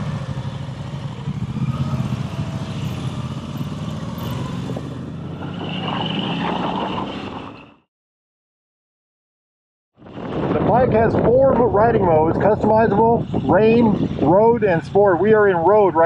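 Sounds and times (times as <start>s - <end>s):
motorcycle engine running: 0.0s - 5.4s.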